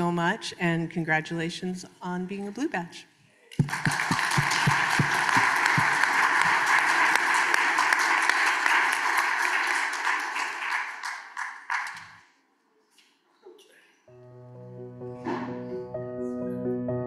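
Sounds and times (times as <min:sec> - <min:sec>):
audience applauding: 0:03.6 - 0:12.2.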